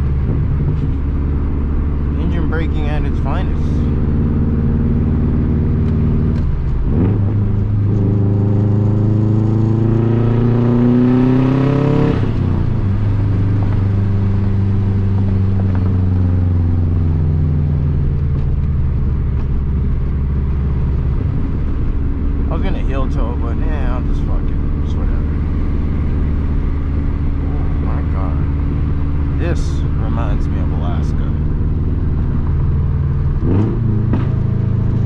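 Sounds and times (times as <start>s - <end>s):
car engine accelerating: 0.0s - 35.0s
loud exhaust: 0.0s - 35.0s.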